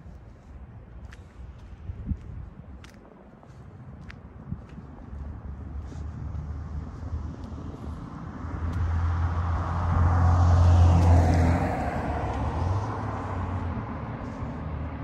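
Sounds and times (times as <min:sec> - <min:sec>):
car passing: 0:05.1 - 0:15.0.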